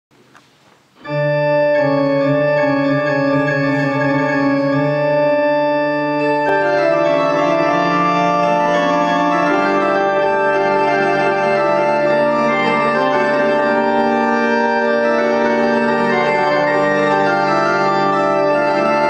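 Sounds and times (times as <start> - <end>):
organ playing sustained chords: 1.0 - 19.0.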